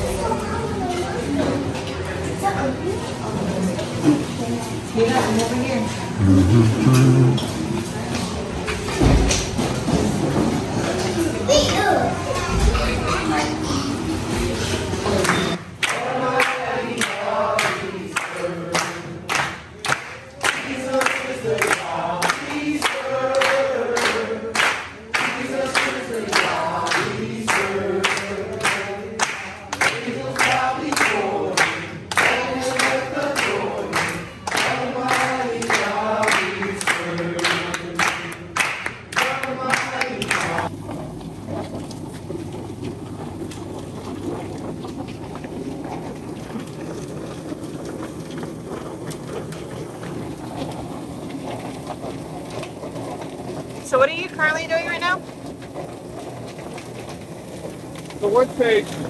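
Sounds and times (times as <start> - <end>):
people clapping in time: 6.2 - 7.6, 15.2 - 40.7
group singing: 15.0 - 40.7
outdoor hiss: 47.5 - 59.0.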